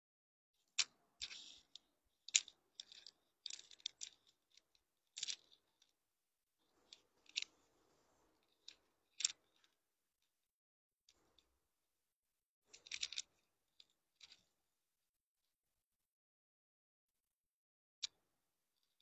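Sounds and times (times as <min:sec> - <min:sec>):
small clicks: 0:00.6 - 0:06.0, 0:06.6 - 0:09.8, 0:12.7 - 0:14.5
clothes rustling: 0:06.6 - 0:08.8.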